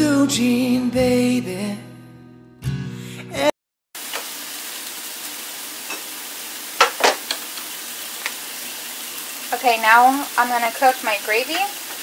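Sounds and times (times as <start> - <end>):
chicken sizzling in a skillet: 4.0 - 12.0.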